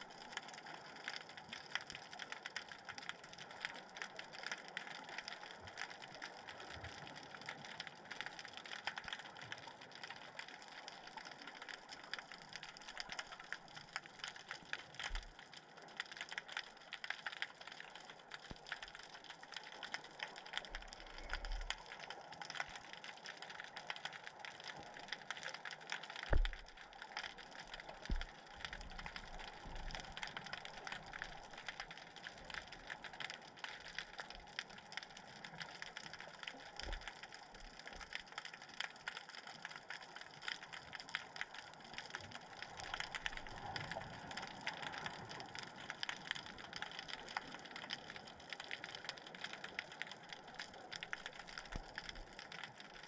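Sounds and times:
dense crackle of tiny clicks: 0.0s - 53.0s
dull low underwater thump: 26.3s - 26.7s.

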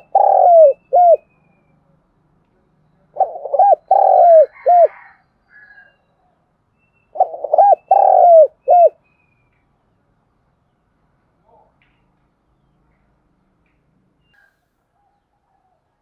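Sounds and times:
dove cooing: 0.0s - 1.3s, 3.1s - 5.2s, 7.1s - 9.0s.

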